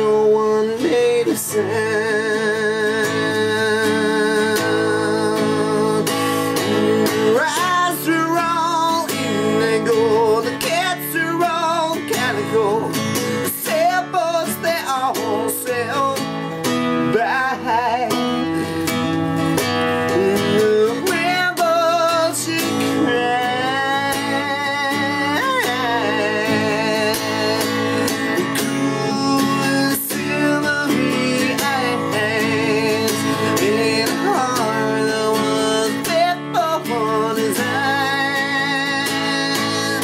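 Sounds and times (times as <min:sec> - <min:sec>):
man singing with vibrato: 0:00.0 - 0:40.0
strummed acoustic guitar: 0:00.0 - 0:40.0.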